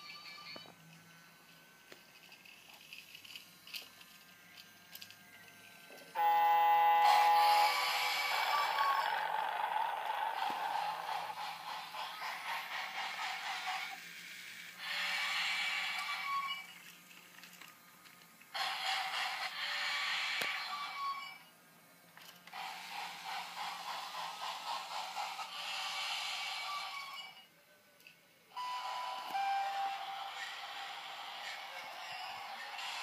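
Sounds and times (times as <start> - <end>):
toy train clattering on track: 1.9 - 6.2, 7.0 - 21.2, 22.1 - 28.2, 30.0 - 33.0.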